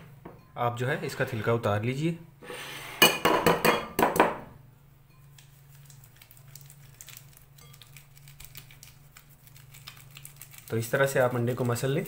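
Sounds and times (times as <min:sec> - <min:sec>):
low steady hum: 0:00.0 - 0:02.4, 0:03.0 - 0:12.0
eggshell crackling: 0:05.3 - 0:12.0.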